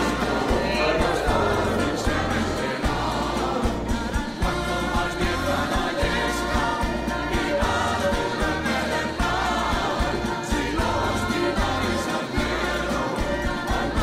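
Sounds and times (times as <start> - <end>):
low bass line: 0.0 - 5.7
voices singing together: 0.0 - 14.0.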